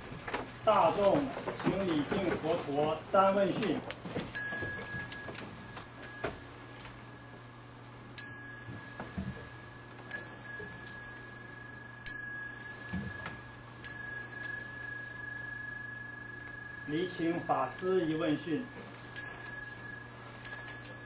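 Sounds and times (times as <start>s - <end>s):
bowl bell ringing: 4.4s - 21.0s.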